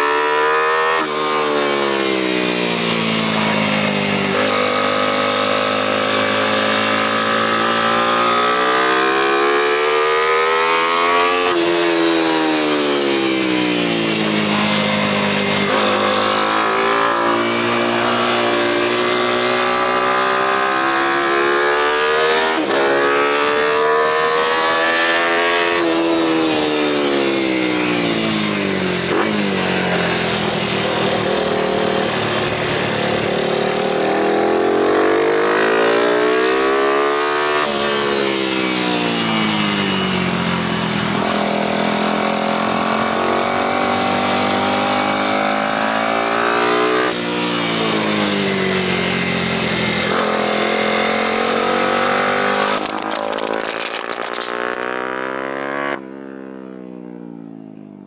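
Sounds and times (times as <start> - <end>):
motorcycle engine revving: 0.0 - 56.8
camera scraping on ground: 52.4 - 55.2.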